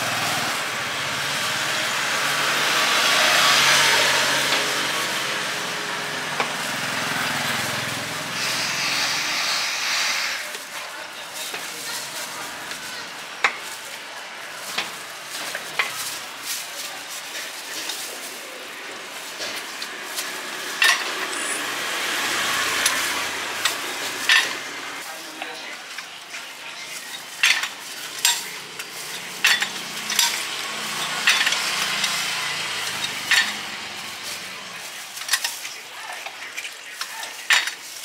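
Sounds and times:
vehicle engine hum: 0.0s - 9.6s, 17.7s - 25.0s.

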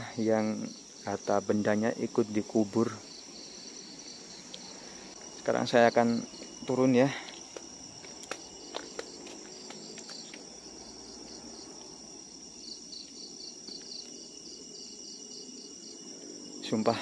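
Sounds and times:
crickets trilling: 0.0s - 17.0s
insect chirping in pulses: 0.0s - 17.0s
footsteps on stone steps: 7.2s - 10.5s.

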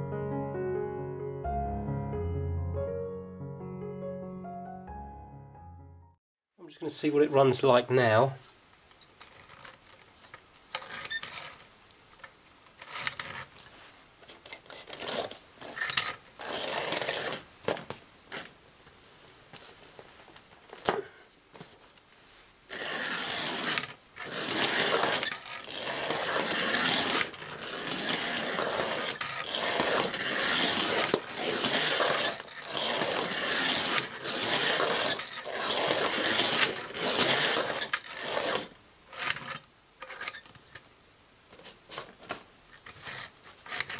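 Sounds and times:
model train motor whirring: 9.2s - 13.5s, 14.4s - 17.5s, 22.7s - 40.6s, 42.7s - 43.9s.

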